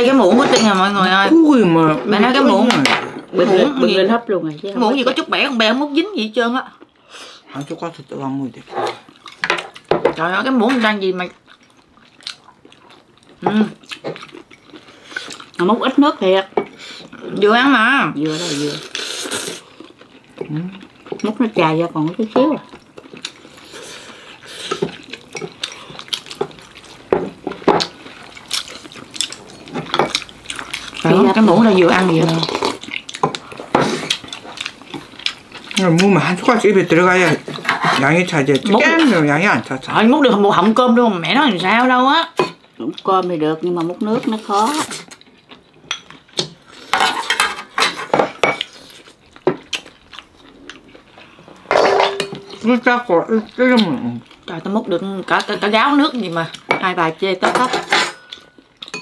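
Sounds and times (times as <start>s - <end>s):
spoons and chopsticks clinking bowls: 51.7s - 52.7s, 56.7s - 59.0s.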